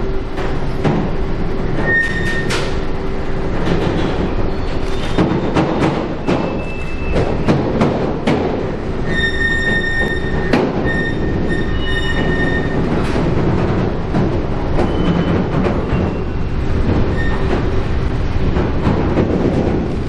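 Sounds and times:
train wheels rumbling: 0:00.0 - 0:20.0
high-pitched wheel squeal: 0:01.8 - 0:02.6, 0:06.5 - 0:07.3, 0:09.0 - 0:12.8, 0:17.1 - 0:17.5
wheels clicking over track: 0:02.0 - 0:20.0.

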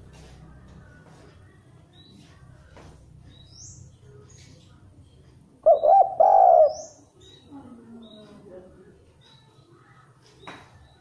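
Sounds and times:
dove cooing: 0:05.6 - 0:07.0.

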